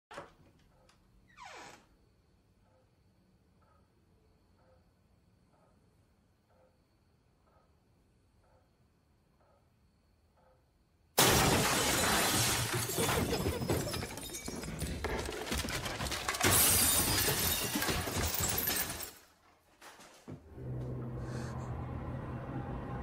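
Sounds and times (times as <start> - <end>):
glass frames crashing and shattering: 11.2 - 19.3
low ominous music drone: 20.5 - 23.0.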